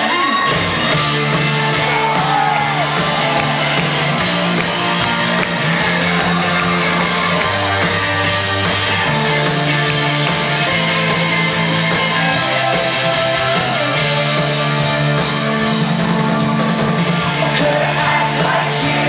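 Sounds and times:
rock band playing live: 0.0s - 19.0s
bass guitar low notes: 0.9s - 19.0s.

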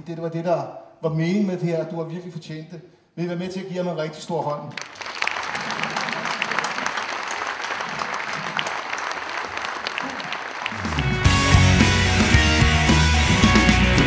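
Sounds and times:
audience clapping: 4.7s - 14.0s
loud music: 10.7s - 14.0s.

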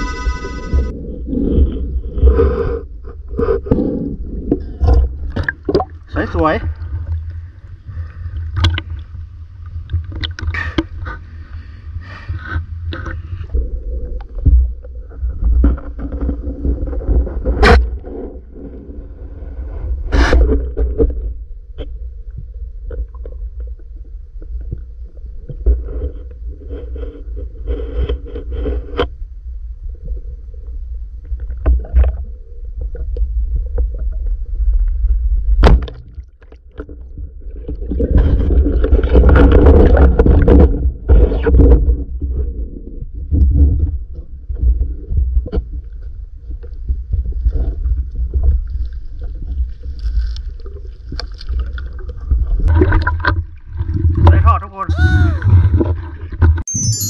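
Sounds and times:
underwater rumbling and bubbling: 0.0s - 56.7s
water splashing: 48.5s - 56.6s.

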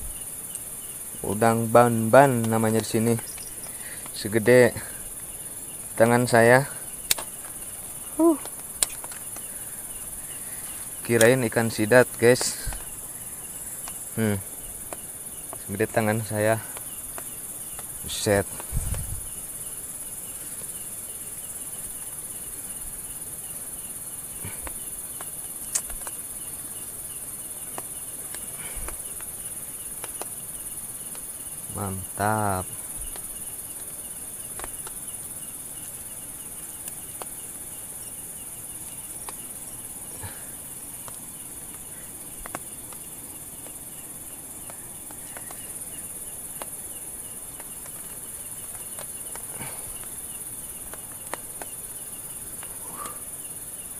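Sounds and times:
faint rapid chirp: 0.0s - 53.9s
night insects chorus: 0.0s - 53.9s
small clicks and taps: 7.1s - 7.3s, 24.6s - 26.2s, 34.5s - 35.0s, 41.0s - 43.8s, 50.9s - 51.8s.

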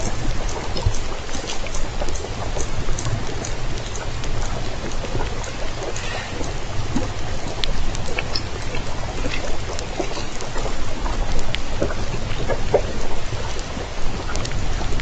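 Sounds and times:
faint clicks: 0.0s - 15.0s
low underwater rumble: 0.0s - 15.0s
steady underwater hiss: 0.0s - 15.0s.

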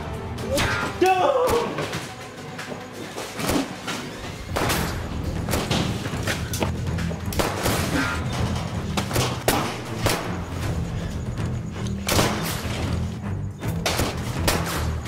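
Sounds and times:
action score with low pulse: 4.3s - 15.0s
sharp gunshots: 7.3s - 8.2s, 9.0s - 10.4s, 12.0s - 12.7s, 13.8s - 15.0s.

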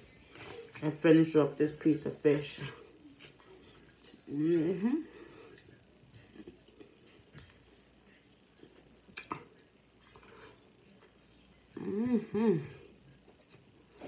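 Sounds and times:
person chewing softly: 2.6s - 12.0s, 12.7s - 14.0s.

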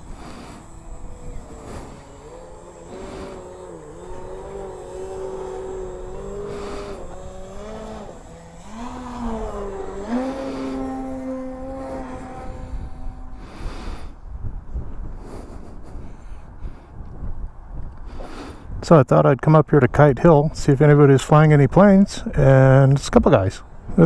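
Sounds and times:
model airplane engine: 0.0s - 18.7s.

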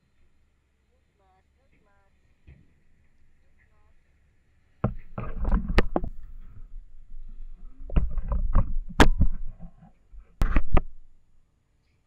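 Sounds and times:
sharp knocks: 4.8s - 6.7s, 7.9s - 9.7s
water splashing and sloshing: 4.8s - 11.0s
dull thuds: 4.8s - 11.1s.

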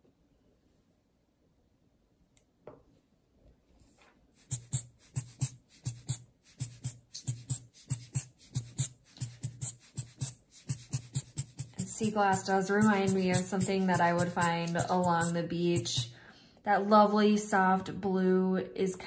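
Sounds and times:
pen scratching on paper: 4.4s - 16.1s.

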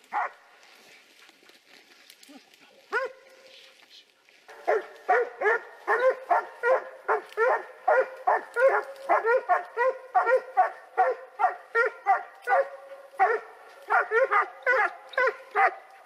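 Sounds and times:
dog barking: 0.1s - 0.4s, 2.9s - 3.4s, 4.5s - 16.0s.

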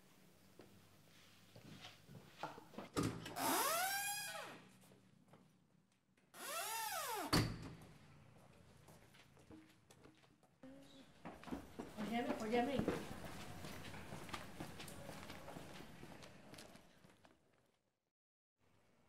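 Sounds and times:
door hinges squeaking: 3.3s - 4.6s, 6.4s - 7.5s.

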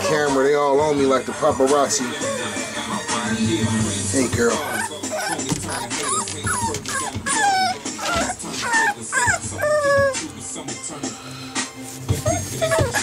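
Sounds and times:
puppies whining and yipping: 0.0s - 0.8s, 1.9s - 3.0s, 4.4s - 10.4s, 12.1s - 13.0s.

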